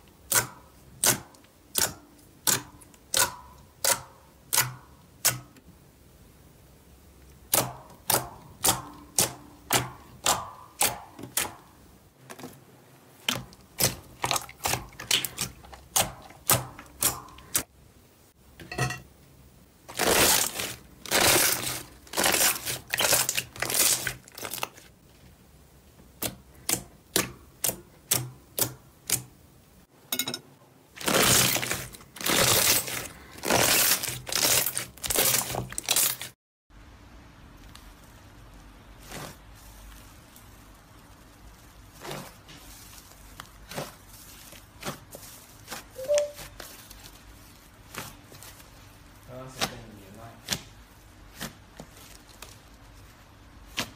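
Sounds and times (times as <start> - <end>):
slime squelching: 7.2 - 17.7, 19.8 - 25.1, 30.9 - 36.4, 37.5 - 53.9.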